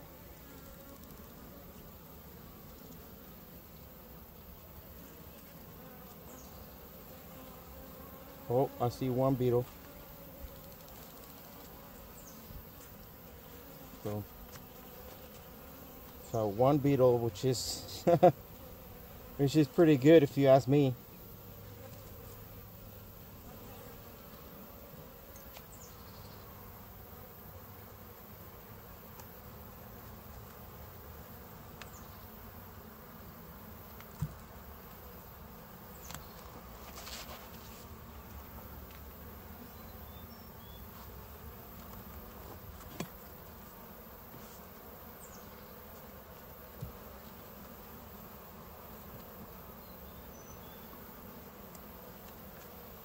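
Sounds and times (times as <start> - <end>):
honeybees buzzing: 0.0 - 53.0
knocks of wooden hive frames: 34.0 - 34.5.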